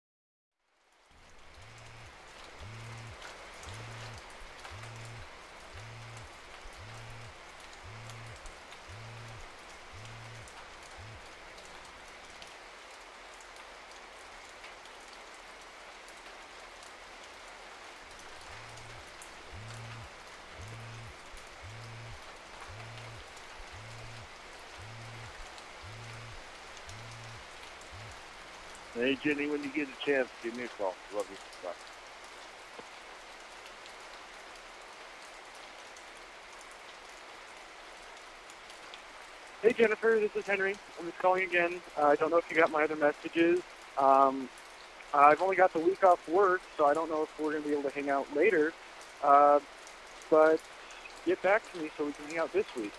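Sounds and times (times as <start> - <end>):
faint crackles: 0.8 - 52.9
steady hiss: 0.9 - 52.9
low buzzing pulses: 1.4 - 11.5, 18.2 - 29.4
fine crackling ticks: 1.4 - 12.5, 18.1 - 31.8.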